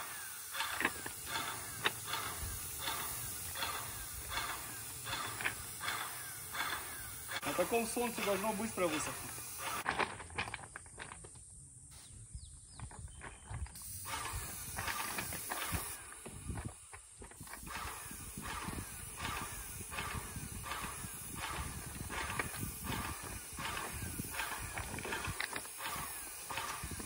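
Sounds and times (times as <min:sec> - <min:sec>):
rhythmic clacking: 0:00.0 - 0:09.8, 0:17.6 - 0:27.0
paint sprayer hissing: 0:00.0 - 0:09.9, 0:13.7 - 0:27.0.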